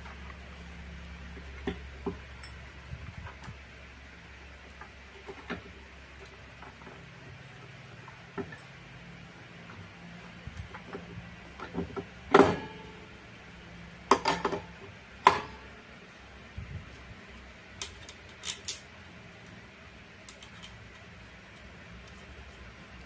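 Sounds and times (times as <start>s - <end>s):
metal parts clanking: 17.8s - 18.9s.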